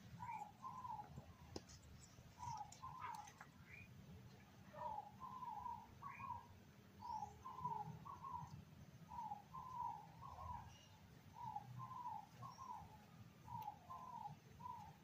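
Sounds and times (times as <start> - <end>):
bird calling low notes: 0.1 - 1.5, 9.1 - 15.0
higher bird chirps: 4.7 - 15.0.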